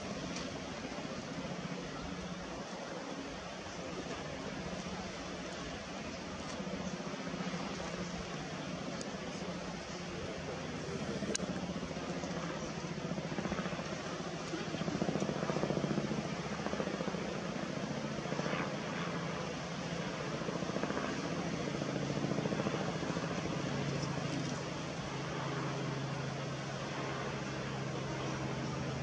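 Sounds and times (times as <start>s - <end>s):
low engine drone: 0.0s - 17.1s.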